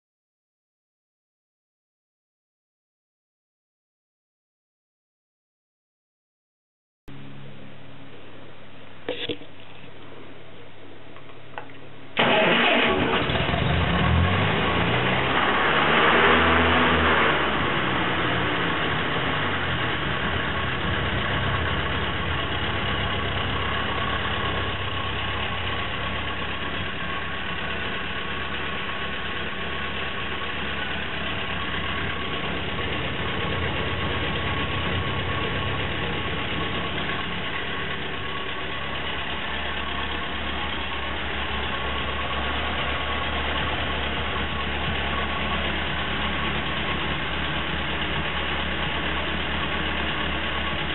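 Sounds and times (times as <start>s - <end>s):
tractor engine idling: 12.2s - 13.9s, 17.4s - 50.9s.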